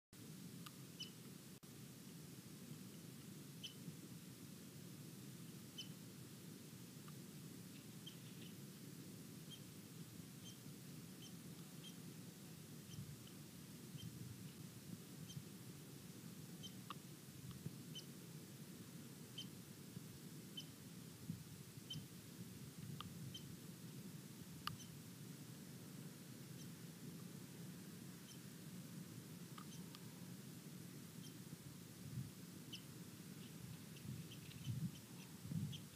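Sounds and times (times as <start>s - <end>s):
small bird chipping: 1.0s - 1.2s, 3.6s - 3.8s, 5.7s - 6.0s, 7.7s - 8.6s, 9.4s - 9.7s, 10.4s - 10.6s, 11.2s - 12.0s, 12.8s - 14.6s, 15.2s - 15.5s, 16.6s - 17.0s, 19.3s - 19.6s, 20.5s - 20.8s, 21.9s - 22.1s, 24.6s - 25.0s, 26.5s - 26.8s, 28.2s - 28.5s, 29.6s - 30.1s, 31.1s - 31.5s, 32.6s - 35.9s.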